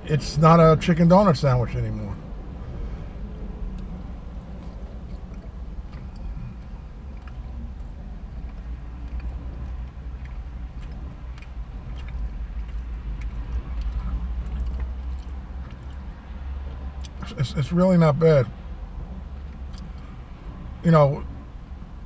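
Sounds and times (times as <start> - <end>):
steady low hum: 0.0 - 22.0
man chewing food: 3.7 - 17.2, 19.4 - 20.1
wet mouth clicks: 8.5 - 16.0.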